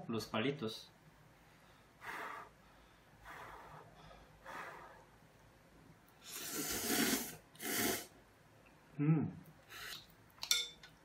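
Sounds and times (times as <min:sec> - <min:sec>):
soft breaths: 0:01.3 - 0:05.5
person slurping noodles: 0:06.2 - 0:08.2.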